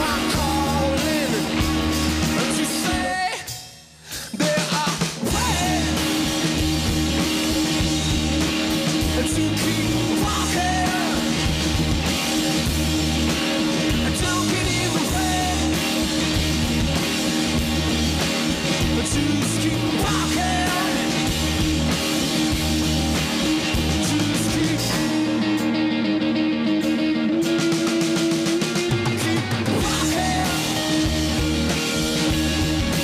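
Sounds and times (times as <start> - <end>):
man singing lead vocals: 0.0 - 6.4, 8.9 - 11.6, 13.8 - 16.2, 18.7 - 21.6, 23.6 - 25.8, 28.1 - 32.3
live rock band playing: 0.0 - 33.0.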